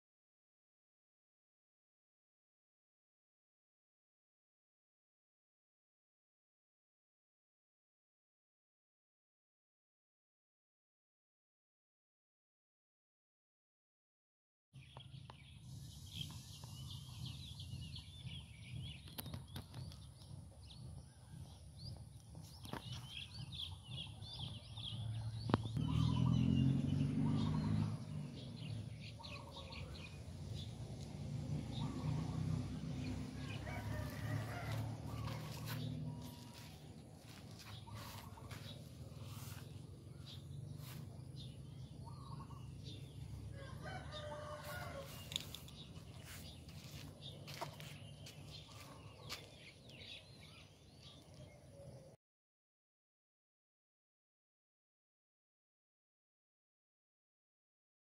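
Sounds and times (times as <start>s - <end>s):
small birds chirping: 14.8s - 52.1s
rooster crowing: 33.2s - 35.7s, 43.5s - 45.5s.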